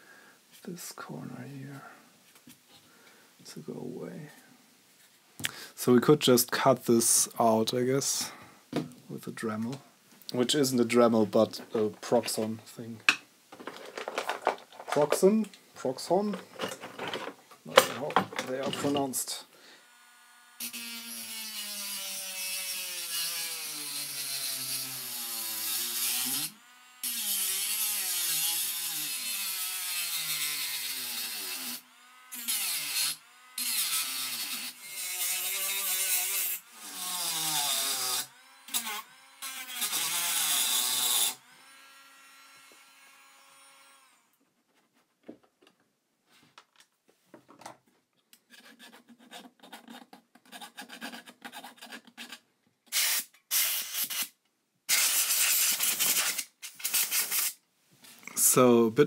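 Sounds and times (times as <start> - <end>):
rotary tool grinding metal: 20.1 - 44.2.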